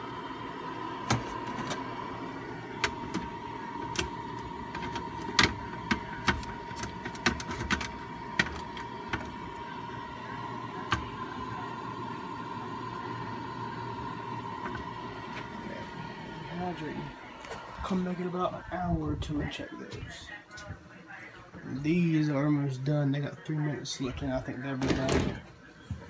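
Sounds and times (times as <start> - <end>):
food dehydrator fan hum: 0.0 - 20.1.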